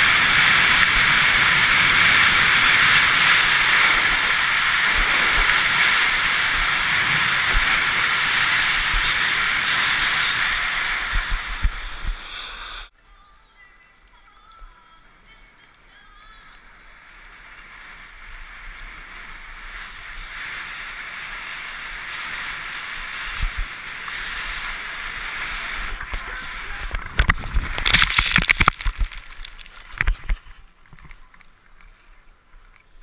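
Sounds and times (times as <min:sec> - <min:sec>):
skis scraping and knocking: 0:00.0 - 0:12.8, 0:16.5 - 0:33.0
skis hissing on snow: 0:00.0 - 0:12.9, 0:15.9 - 0:28.2
wind rushing: 0:00.0 - 0:12.9, 0:17.0 - 0:29.2.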